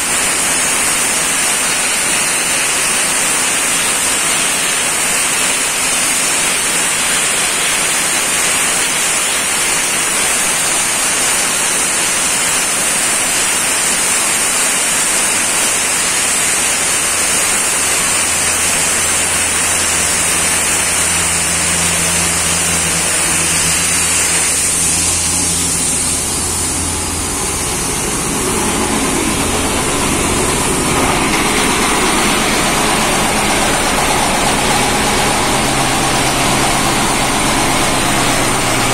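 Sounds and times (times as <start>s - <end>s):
sandblaster hissing: 0.0s - 38.9s
engine low hum: 16.9s - 38.9s.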